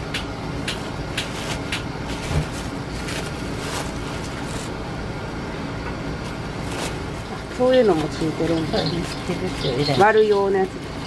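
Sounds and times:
steady background hum: 0:00.0 - 0:11.0
paper rustling and crinkling: 0:00.8 - 0:04.8, 0:06.2 - 0:10.9.

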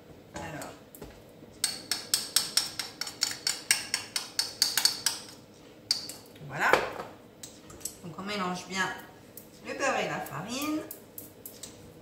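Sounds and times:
spoon clinking against a bowl: 0:01.6 - 0:06.2.

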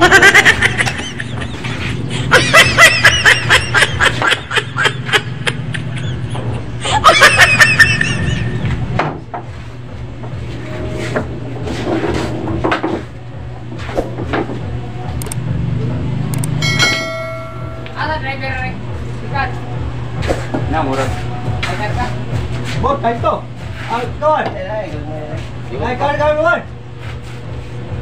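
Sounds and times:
laughter in pulsed bursts: 0:00.0 - 0:08.9
steady low hum: 0:00.0 - 0:28.0
sharp clicks: 0:15.2 - 0:15.4, 0:16.3 - 0:16.6.

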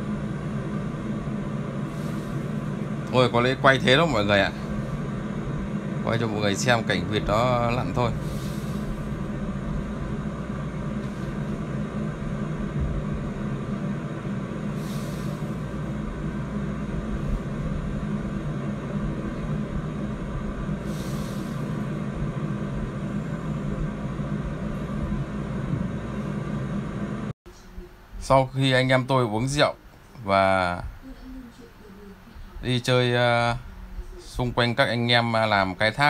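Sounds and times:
engine running with low drone: 0:00.0 - 0:28.0.

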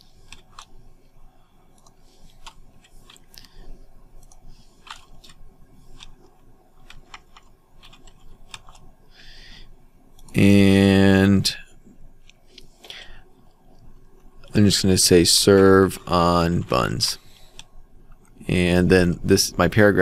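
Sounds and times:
keyboard and mouse clicks: 0:00.2 - 0:00.7, 0:01.7 - 0:03.6, 0:04.2 - 0:08.9.

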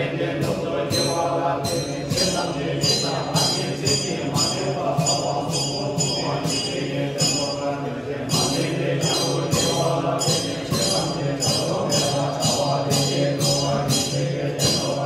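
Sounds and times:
low droning chanting: 0:00.0 - 0:15.0
ringing metal percussion: 0:00.0 - 0:15.0.

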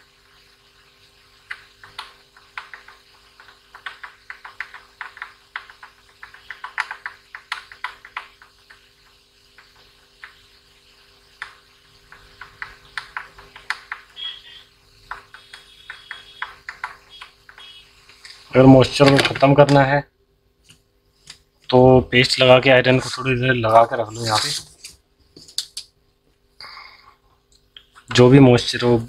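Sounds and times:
flux crackling under soldering iron: 0:00.0 - 0:19.5.

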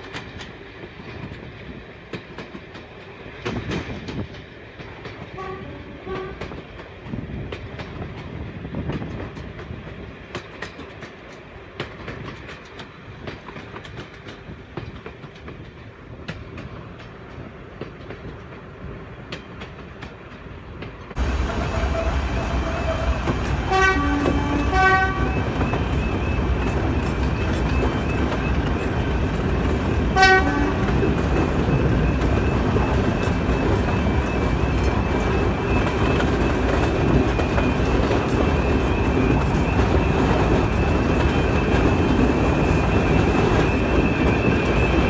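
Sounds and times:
train wheels clicking over rail joints: 0:00.0 - 0:45.0
two-tone train horn: 0:05.4 - 0:06.6, 0:21.2 - 0:25.8, 0:30.1 - 0:31.2.

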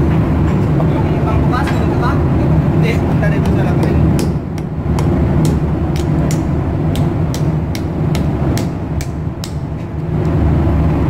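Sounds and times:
low machinery hum: 0:00.0 - 0:11.0.

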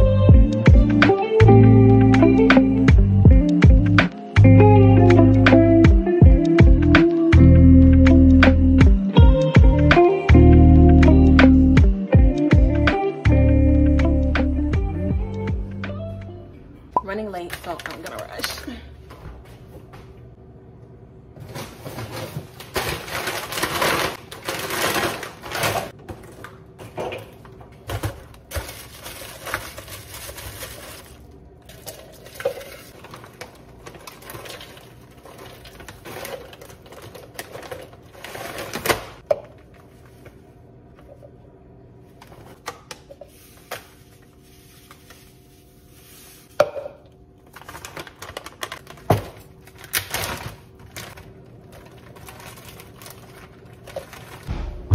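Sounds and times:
plastic bags rustling: 0:21.4 - 0:40.5, 0:43.3 - 0:46.6, 0:47.4 - 0:54.5.

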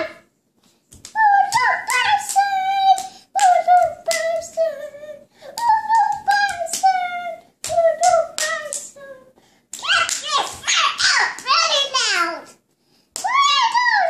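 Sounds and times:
sharp claps: 0:00.9 - 0:04.6, 0:05.6 - 0:07.0, 0:07.6 - 0:08.9, 0:09.7 - 0:11.9, 0:13.2 - 0:14.0
toddler girl singing: 0:01.1 - 0:09.4.

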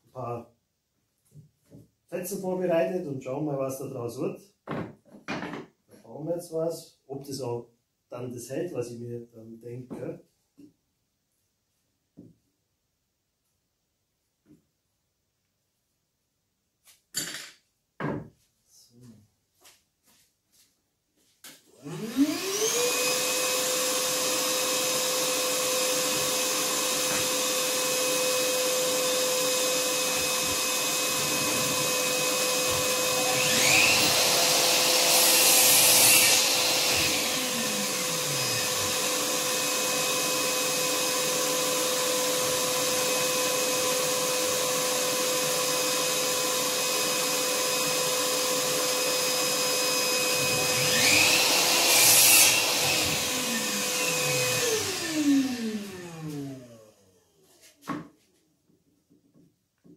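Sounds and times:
vacuum cleaner motor whining: 0:21.7 - 0:57.4.

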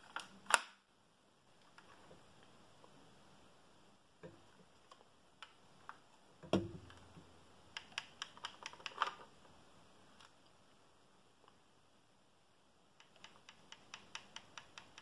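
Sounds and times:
plastic knock: 0:06.5 - 0:07.0
rapid plastic clicks: 0:07.7 - 0:09.2, 0:13.0 - 0:15.0.

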